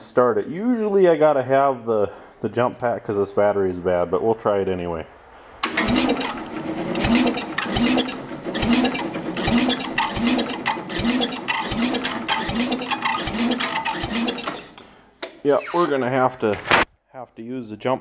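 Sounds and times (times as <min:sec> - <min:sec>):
engine cranking without starting: 0:05.6 - 0:15.0.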